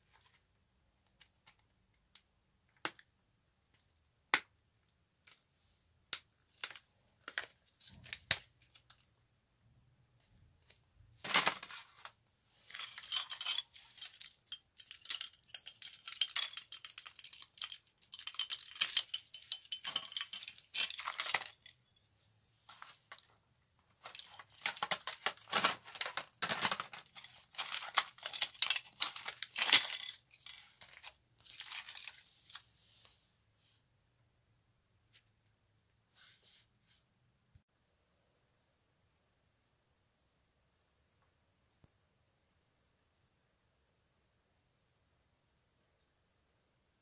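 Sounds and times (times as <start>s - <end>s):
small parts clattering on tile floor: 10.6s - 22.0s, 22.7s - 32.7s.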